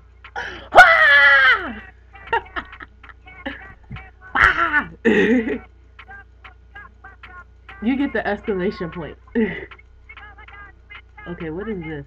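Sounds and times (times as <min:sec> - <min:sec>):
woman crying out: 0:00.4 - 0:02.7, 0:04.3 - 0:05.6.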